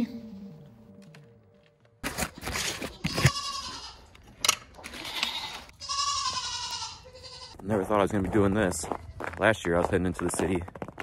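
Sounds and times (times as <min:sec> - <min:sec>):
livestock bleating: 0:02.9 - 0:04.2, 0:04.9 - 0:07.6.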